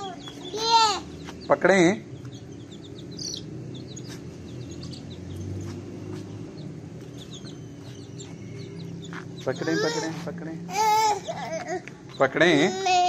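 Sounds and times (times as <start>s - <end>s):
chicks and ducklings peeping: 0.0s - 10.3s.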